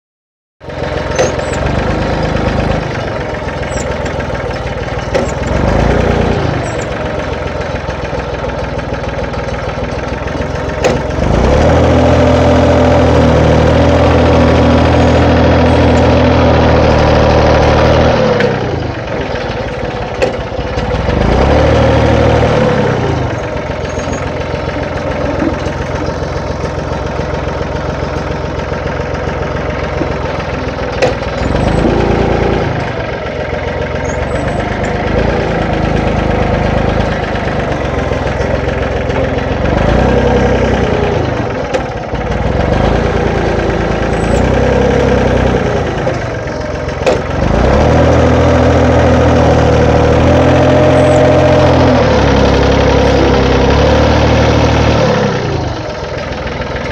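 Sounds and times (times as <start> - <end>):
tractor engine running: 0.6 - 56.9
sharp knocks: 10.8 - 11.2.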